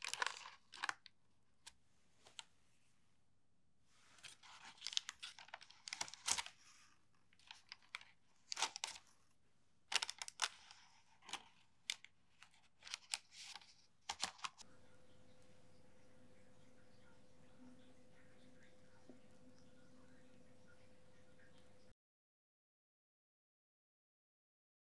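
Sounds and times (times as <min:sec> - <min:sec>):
bread crust crackling: 0:00.0 - 0:02.4, 0:04.0 - 0:09.3, 0:09.9 - 0:14.7
parchment paper rustling: 0:00.0 - 0:02.8, 0:04.0 - 0:09.3, 0:09.9 - 0:14.6
soft bread tearing: 0:04.0 - 0:09.2, 0:09.9 - 0:14.7.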